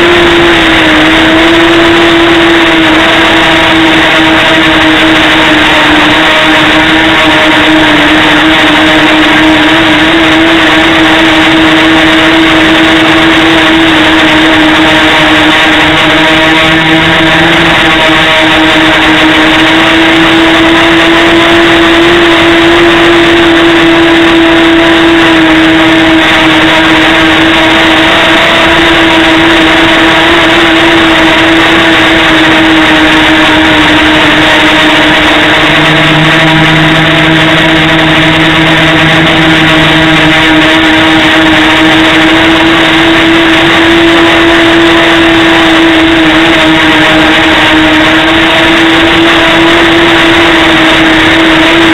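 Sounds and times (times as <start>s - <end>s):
drone propellers buzzing: 0.0s - 51.9s.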